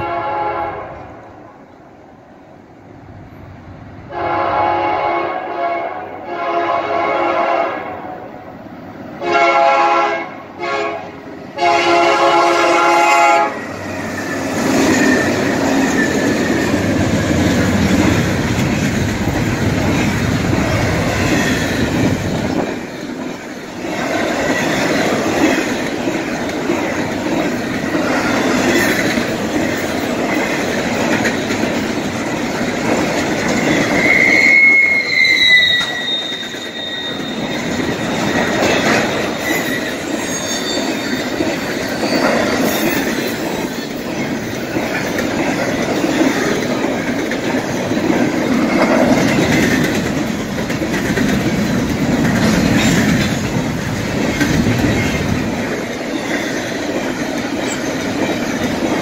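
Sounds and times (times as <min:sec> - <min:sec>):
freight train wheels rumbling: 0:00.0 - 0:59.0
high wheel squeal: 0:13.6 - 0:17.4, 0:33.6 - 0:44.1.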